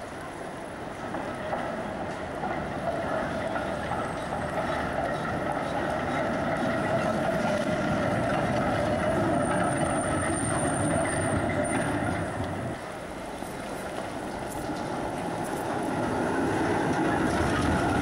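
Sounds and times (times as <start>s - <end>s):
tram wheels on rails: 0.0s - 18.0s
high wheel squeal: 3.1s - 12.8s.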